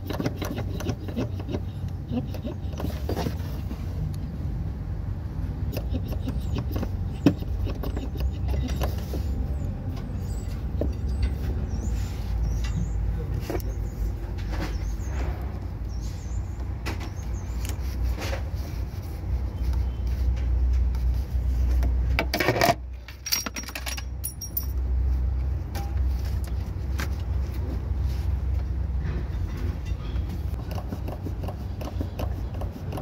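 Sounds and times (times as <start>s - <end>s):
metal tools clinking on an engine: 5.7s - 15.2s, 22.2s - 25.1s, 29.0s - 30.4s.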